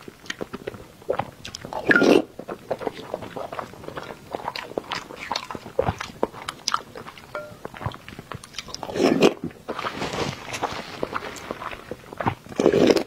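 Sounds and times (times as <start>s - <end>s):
person chewing with wet mouth clicks: 0.2s - 9.4s.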